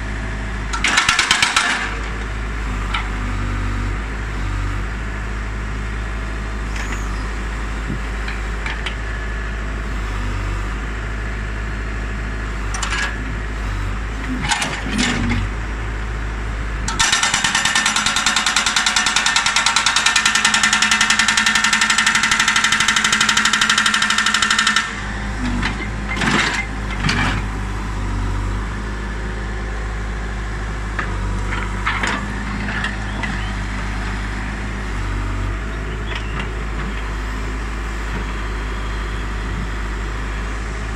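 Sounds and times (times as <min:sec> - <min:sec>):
diesel digger engine running: 0:00.0 - 0:40.9
hydraulic rock breaker hammering: 0:16.9 - 0:27.4.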